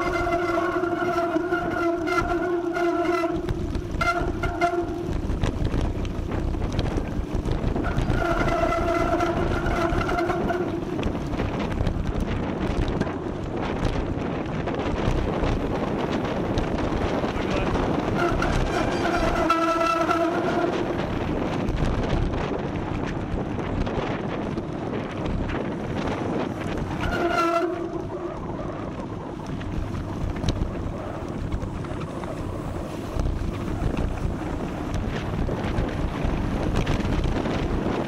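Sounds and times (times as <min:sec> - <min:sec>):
short horn-like tones: 0:00.0 - 0:05.1, 0:07.8 - 0:10.9, 0:18.2 - 0:20.8, 0:27.0 - 0:28.2
wind rushing over microphone: 0:00.0 - 0:38.0.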